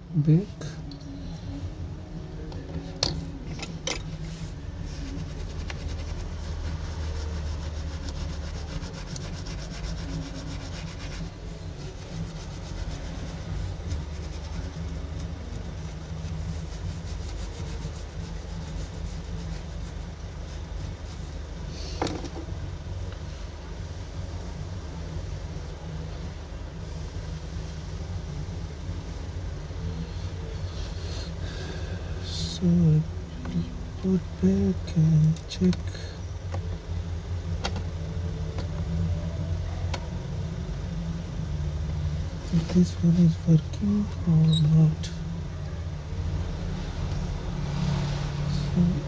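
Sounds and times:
steady low hum: 0.0 - 49.0
brush scrubbing circuit board: 4.4 - 21.4.

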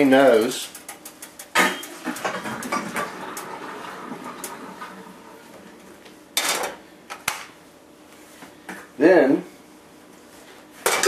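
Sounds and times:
hot water pouring from pot: 2.0 - 5.4.

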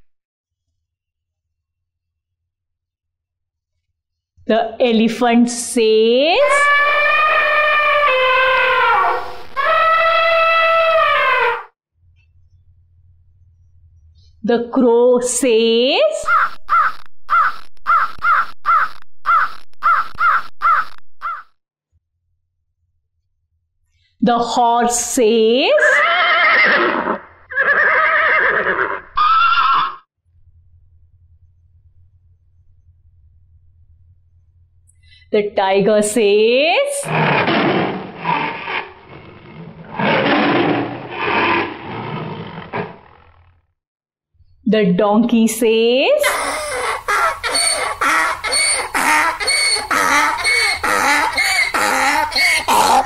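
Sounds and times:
crow cawing: 16.3 - 21.4, 46.3 - 53.0
tiger roaring: 37.0 - 43.4.

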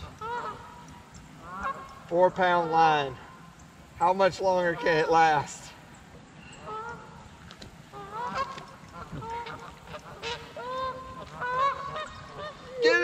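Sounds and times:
geese honking: 0.0 - 5.7, 6.6 - 13.0.

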